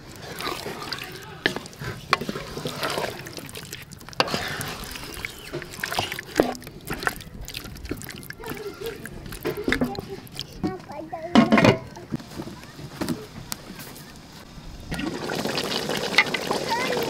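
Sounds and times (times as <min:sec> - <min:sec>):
spatula squelching scrapes: 0:00.0 - 0:10.8.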